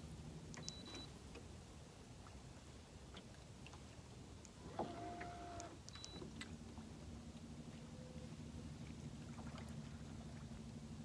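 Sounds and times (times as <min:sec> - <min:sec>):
boat motor running low: 0:04.6 - 0:11.0.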